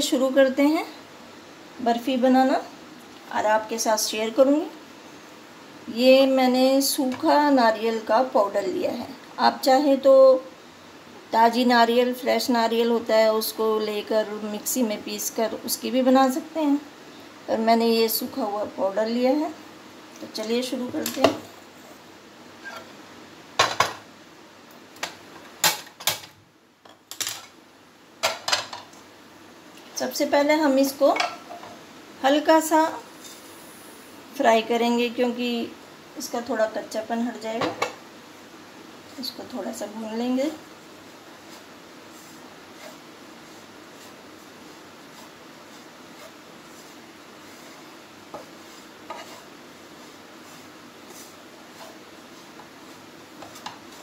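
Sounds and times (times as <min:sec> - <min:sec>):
spatula scraping in a pan: 0:41.3 - 0:54.0.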